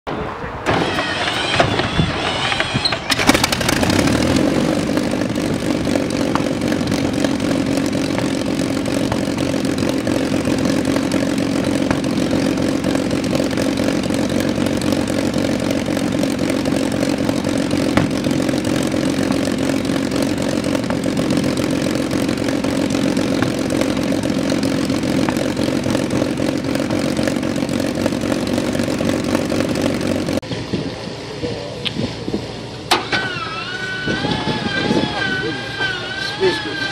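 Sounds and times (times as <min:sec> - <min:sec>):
aircraft engine starting and running: 0:00.2 - 0:36.9.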